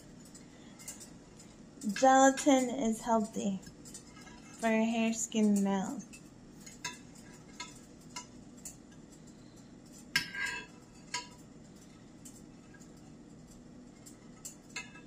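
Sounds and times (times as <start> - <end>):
metal spoon clinking on glass dish: 9.9 - 11.4.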